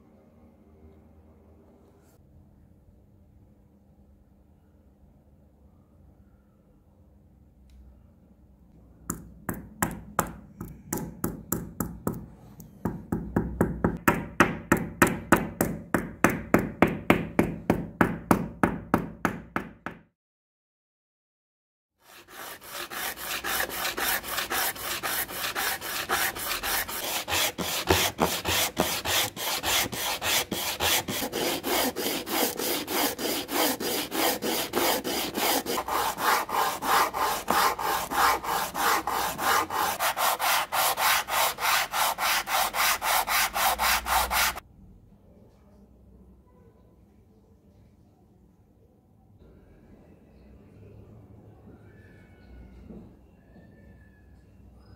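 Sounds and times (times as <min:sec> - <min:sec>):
wood block rasping on sandpaper: 0:22.0 - 0:44.6.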